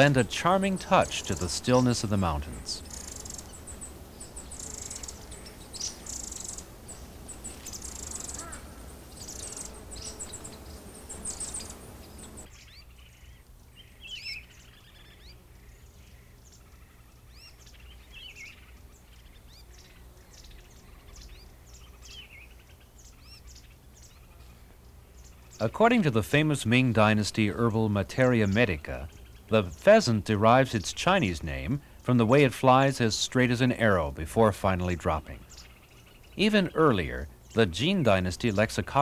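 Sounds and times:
steady low hum: 0.0 - 39.0
very high thin bird calls: 2.7 - 24.6.

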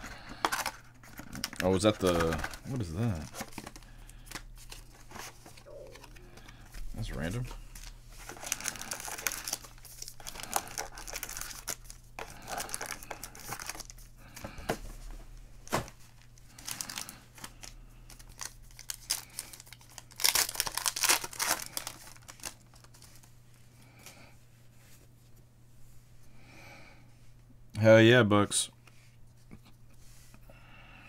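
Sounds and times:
foil packs crinkling: 0.0 - 14.5, 15.6 - 23.3
foil pack tearing open: 7.8 - 13.9, 16.5 - 23.1.

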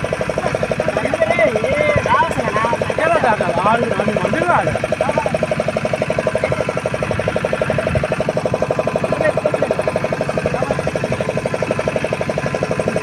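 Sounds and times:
boat engine chugging: 0.0 - 13.0.

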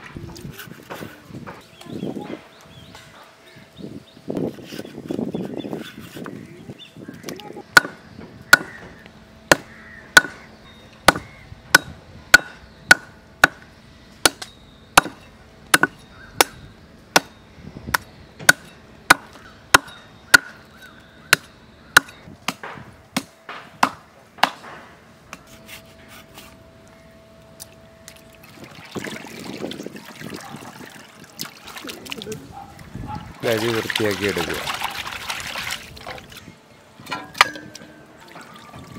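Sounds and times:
knife chopping bones on wooden board: 10.2 - 10.4.

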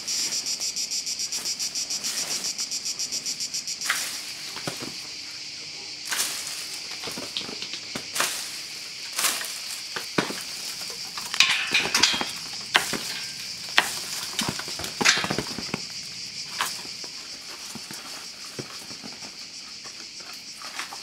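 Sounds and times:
high insect chorus: 0.0 - 21.0
nuts pattering on plastic tarp: 6.0 - 21.0.

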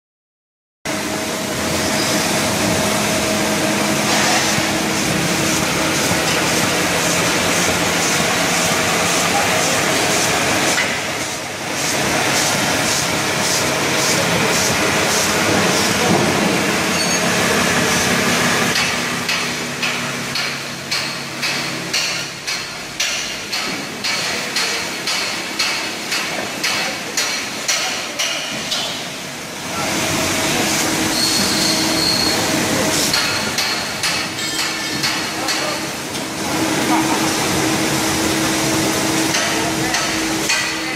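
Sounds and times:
labelling machine running: 0.9 - 25.6, 29.0 - 40.9
regular clacking of bottles: 33.1 - 36.2.

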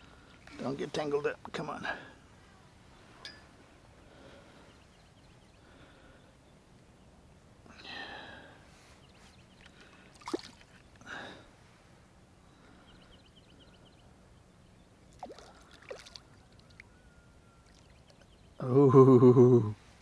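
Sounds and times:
fish splashing at water surface: 10.1 - 10.7, 15.1 - 16.8.

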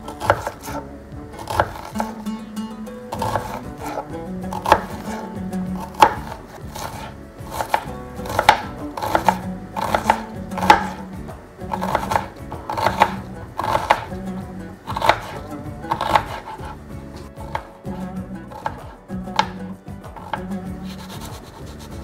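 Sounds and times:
knife tapping on cutting board: 5.9 - 11.0, 18.5 - 20.5.

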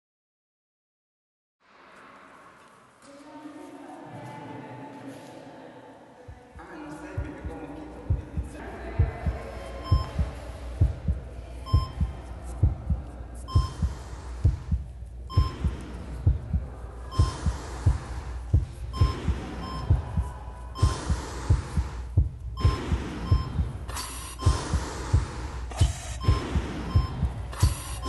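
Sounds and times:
heartbeat thumps: 6.3 - 28.0
low hum: 7.0 - 28.0
short high beep: 22.6 - 24.6, 25.7 - 28.0.

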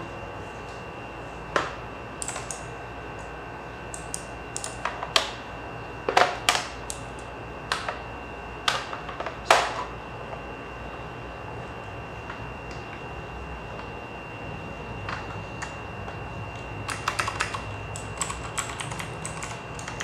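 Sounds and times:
mechanical keyboard clicks: 2.2 - 2.6, 4.0 - 4.8, 16.9 - 20.0.

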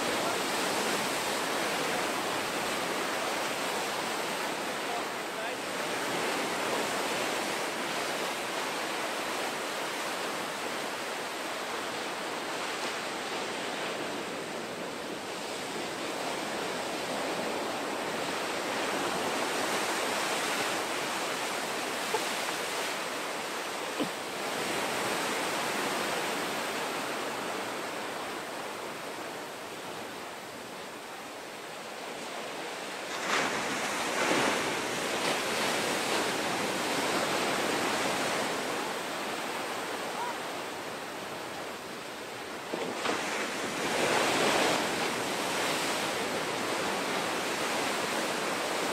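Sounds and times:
wave crashing: 0.0 - 14.5, 32.8 - 48.9
ocean surf washing ashore: 0.0 - 48.9.

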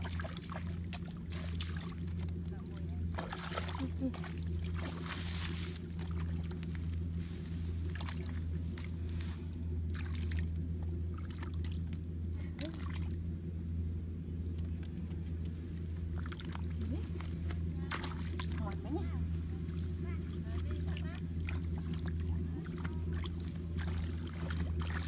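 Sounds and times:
splashing in muddy water: 0.0 - 13.2, 14.4 - 25.0
low mechanical hum: 0.0 - 25.0.

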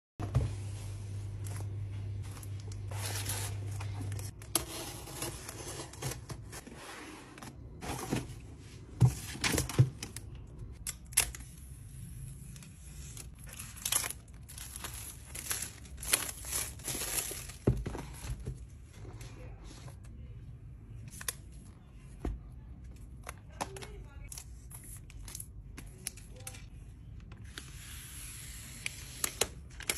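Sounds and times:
plastic mailer and cardboard rustling: 0.2 - 10.5, 12.3 - 20.0.

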